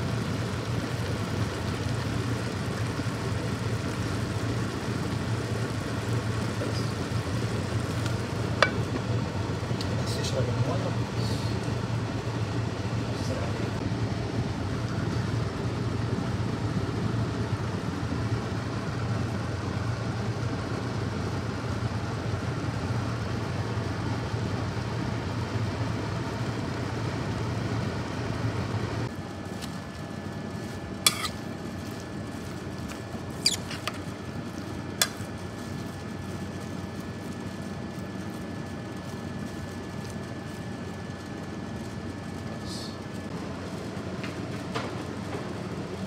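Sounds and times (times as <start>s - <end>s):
low kitchen hum: 0.0s - 46.0s
kitchenware clinking: 8.6s - 9.0s.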